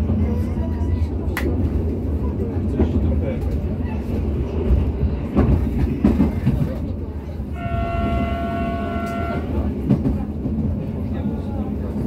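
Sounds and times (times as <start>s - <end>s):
train rumble: 0.0s - 12.0s
train horn: 7.5s - 9.7s.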